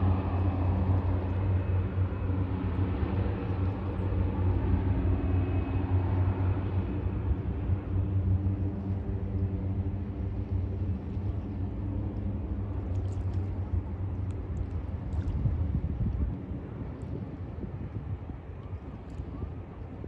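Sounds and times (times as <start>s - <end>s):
turboprop plane droning: 0.0s - 20.0s.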